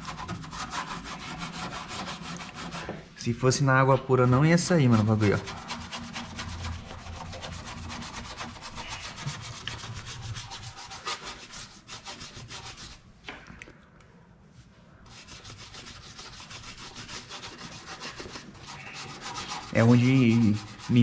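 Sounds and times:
brush scrubbing steel: 0:00.0 - 0:02.9, 0:04.2 - 0:13.1, 0:15.1 - 0:21.0.

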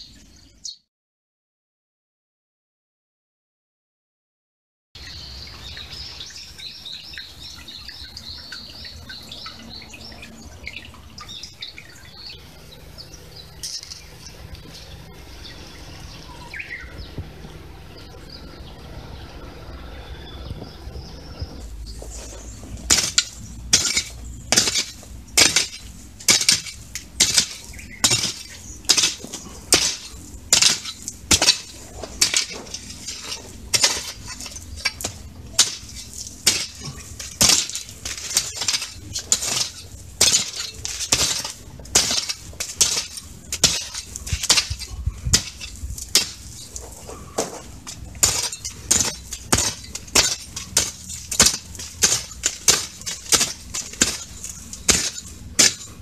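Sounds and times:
garden fork scraping gravelly soil: 0:21.7 - 0:56.0.

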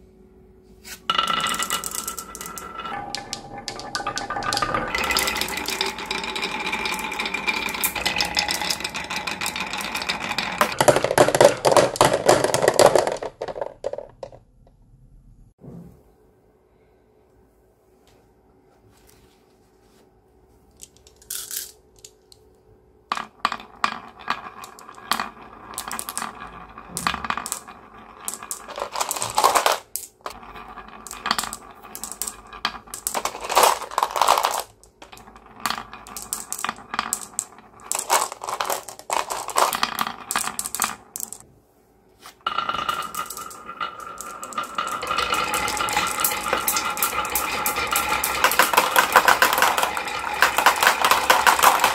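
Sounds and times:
marbles rolling down wooden slopes: 0:01.1 - 0:14.4, 0:23.1 - 0:41.4, 0:42.4 - 0:51.9.

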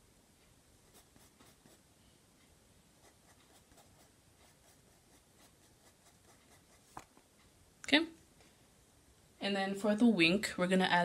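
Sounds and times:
pencil scratching on paper: 0:00.8 - 0:01.8, 0:03.0 - 0:07.1.

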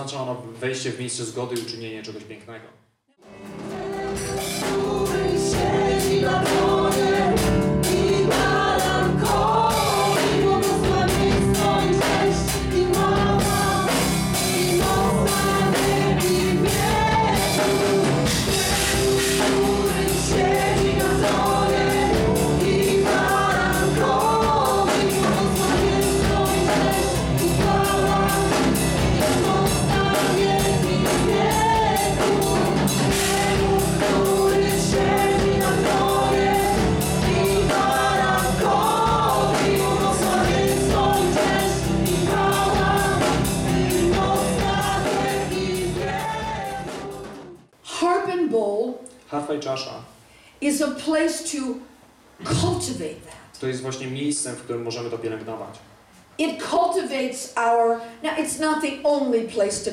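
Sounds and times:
keyboard: 0:03.2 - 0:47.7
drum kit beat: 0:03.4 - 0:47.7
women singing: 0:03.4 - 0:47.7.

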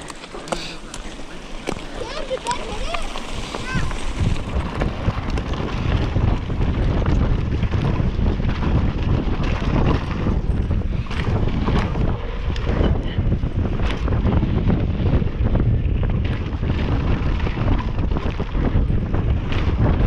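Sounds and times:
bike tyres crunching on gravel: 0:00.0 - 0:12.5
wind rush on microphone: 0:00.0 - 0:20.0.

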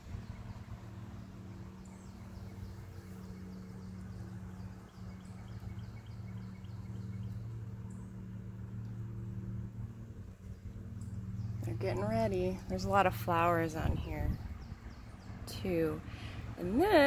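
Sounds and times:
small bird chirping: 0:00.0 - 0:08.2, 0:13.7 - 0:16.4
low motor hum: 0:00.0 - 0:17.0.

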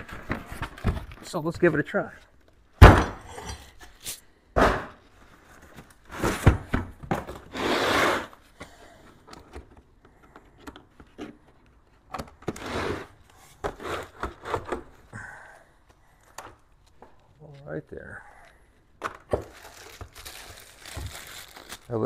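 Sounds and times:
cardboard and plastic rustling: 0:00.0 - 0:02.6, 0:05.0 - 0:07.6, 0:18.8 - 0:22.0
plastic wrap rustling: 0:19.3 - 0:22.0.

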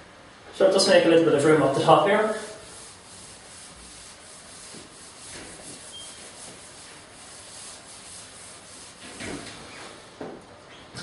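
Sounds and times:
eraser rubbing whiteboard: 0:02.2 - 0:09.5.

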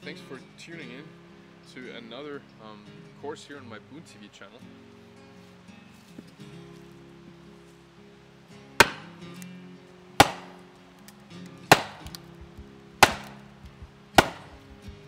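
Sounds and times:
background music: 0:06.8 - 0:15.0
wooden club striking axe head: 0:08.8 - 0:09.2, 0:10.2 - 0:10.6, 0:11.7 - 0:15.0.

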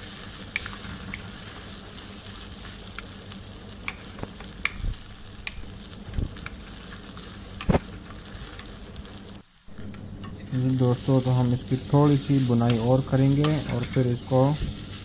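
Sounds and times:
food sizzling in oil: 0:00.0 - 0:15.0
spatula scraping and knocking pan: 0:12.2 - 0:14.9.

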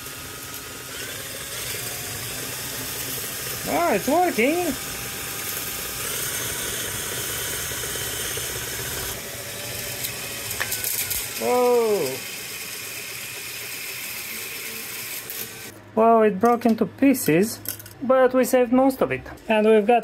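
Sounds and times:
hand-cranked spool rattling: 0:00.9 - 0:09.2.

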